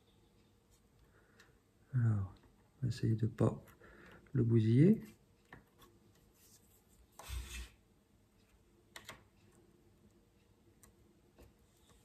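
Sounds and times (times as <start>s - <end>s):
small clicks: 8.4s - 9.6s.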